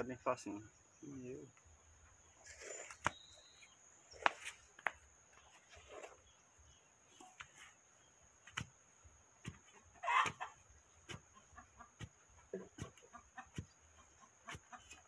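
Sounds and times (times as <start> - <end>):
digging bar knocking into soil: 9.4 - 11.3, 11.9 - 13.8.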